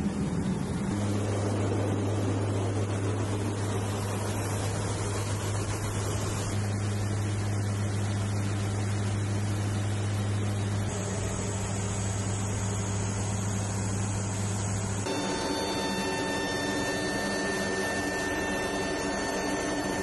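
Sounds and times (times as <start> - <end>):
engine and airflow noise: 0.0 - 20.0
low propeller hum: 0.0 - 20.0.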